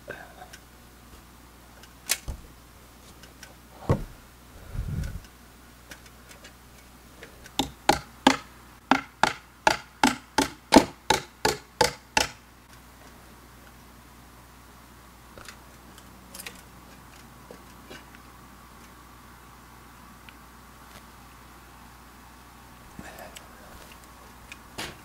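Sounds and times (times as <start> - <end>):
low thud: 3.9 - 4.2.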